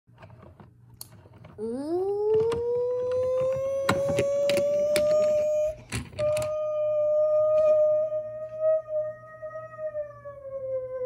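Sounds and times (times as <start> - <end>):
toy trucks clicking and rolling: 0.2 - 6.6
siren wail: 1.6 - 11.0.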